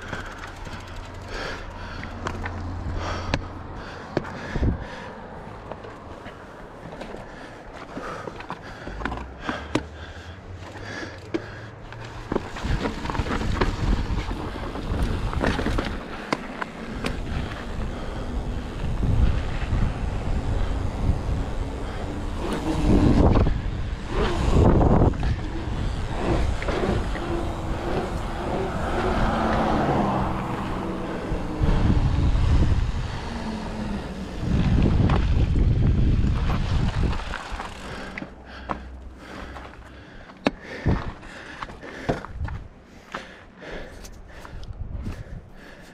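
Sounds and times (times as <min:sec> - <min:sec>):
bike knocks and rattles: 0:00.0 - 0:04.6, 0:10.6 - 0:28.6, 0:34.4 - 0:43.4
bike tyres on dirt trail: 0:00.0 - 0:45.9
wind buffeting microphone: 0:03.7 - 0:05.0, 0:12.4 - 0:38.2, 0:40.7 - 0:42.8, 0:44.3 - 0:45.9.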